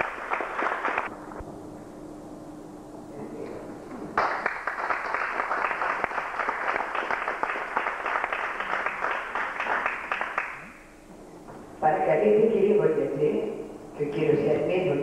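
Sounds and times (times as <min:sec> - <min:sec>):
audience applauding: 0:00.0 - 0:01.1, 0:04.1 - 0:10.7.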